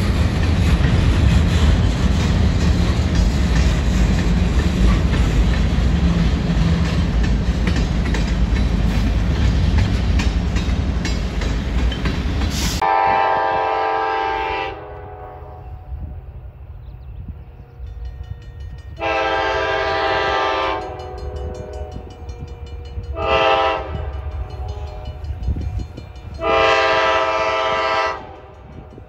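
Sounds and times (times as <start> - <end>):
freight train wheels clacking: 0.0 - 14.0, 17.8 - 29.0
locomotive horn: 12.8 - 16.2, 19.0 - 25.2, 26.4 - 28.8.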